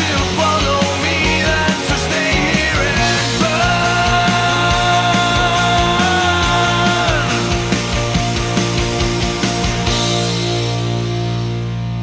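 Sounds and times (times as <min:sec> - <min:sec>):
rock music: 0:00.0 - 0:12.0
electric guitar chord ringing: 0:02.9 - 0:12.0.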